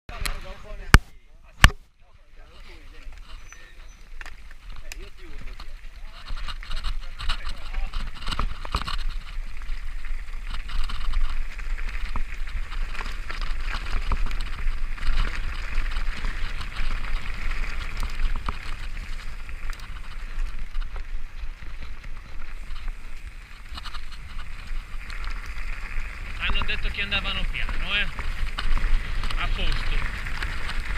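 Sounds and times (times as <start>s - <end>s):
bike tyres crunching over gravel: 0.1s - 1.2s, 2.0s - 30.9s
wind rumbling on microphone: 1.5s - 30.9s
bike knocks and rattles: 4.3s - 30.9s.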